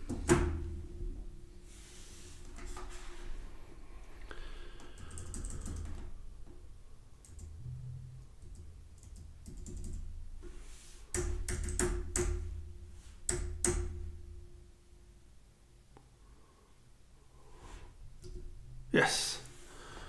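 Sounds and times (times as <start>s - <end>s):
keyboard keys clicking: 4.9s - 6.1s.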